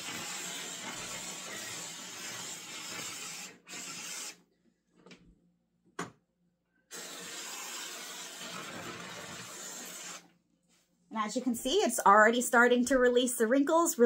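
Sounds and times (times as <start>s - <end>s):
garment steamer hissing: 0.0s - 4.4s, 6.9s - 10.3s.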